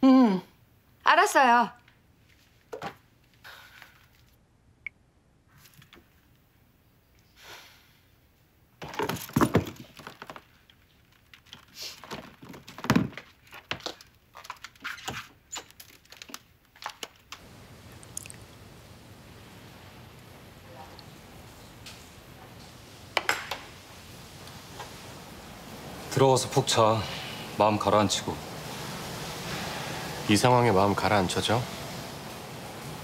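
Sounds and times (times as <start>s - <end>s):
room background noise: 0.0s - 33.0s.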